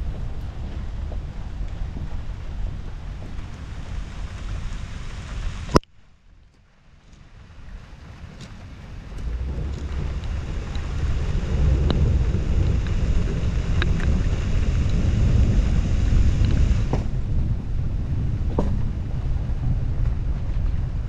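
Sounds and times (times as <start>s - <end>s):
wind buffeting microphone: 0.0s - 5.8s, 6.9s - 21.0s
car tyres rumbling on wet road: 0.0s - 21.0s.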